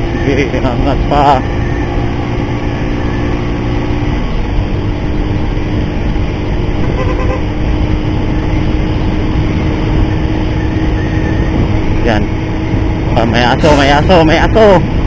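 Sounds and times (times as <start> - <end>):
motorcycle engine: 0.0 - 15.0
wind rumble on microphone: 0.0 - 15.0
horn toot: 6.8 - 7.5.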